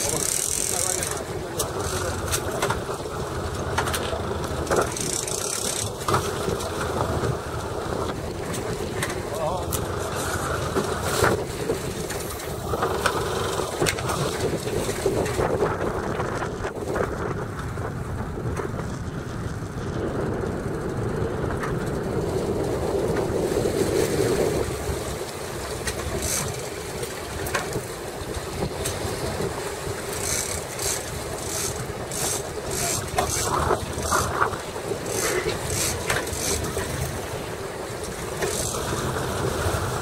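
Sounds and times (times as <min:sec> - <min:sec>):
boat engine running: 0:00.0 - 0:40.0
wind buffeting microphone: 0:00.0 - 0:40.0
sharp clicks: 0:04.7 - 0:05.9.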